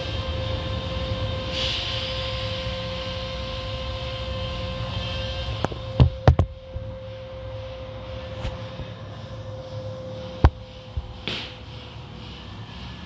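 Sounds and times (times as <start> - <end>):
car wash machinery hum: 0.0 - 13.0.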